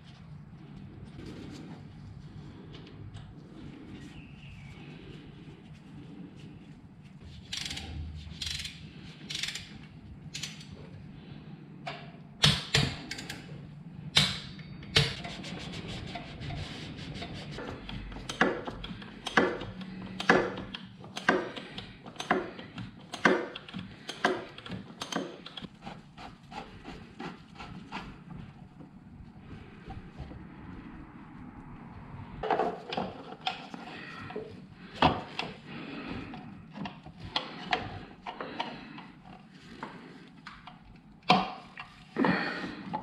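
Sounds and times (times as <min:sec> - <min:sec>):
tools and metal parts clicking: 0:07.5 - 0:10.8
regular clicks: 0:17.6 - 0:25.7.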